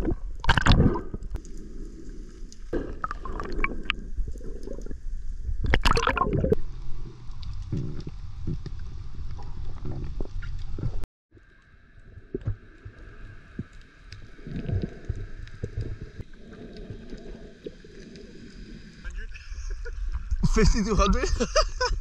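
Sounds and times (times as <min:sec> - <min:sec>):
underwater clicks: 0:00.0 - 0:01.6, 0:05.6 - 0:06.5
water gurgling: 0:00.0 - 0:02.0, 0:02.6 - 0:21.2
underwater rumble of water: 0:00.0 - 0:21.4.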